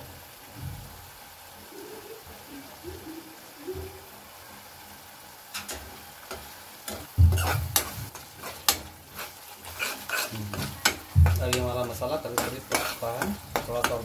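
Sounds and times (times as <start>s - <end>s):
paste sizzling in oil: 4.2s - 14.0s
metal spoon scraping a pan: 6.3s - 14.0s.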